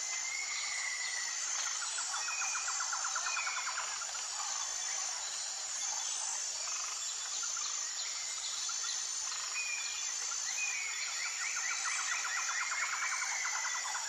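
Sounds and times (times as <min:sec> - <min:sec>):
insects humming: 0:00.0 - 0:14.0.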